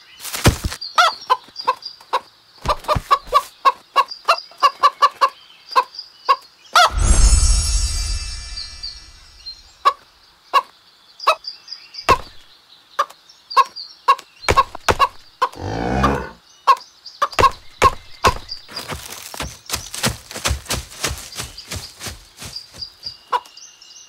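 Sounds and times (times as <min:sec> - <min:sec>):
faint high chirps: 0:06.8 - 0:09.9.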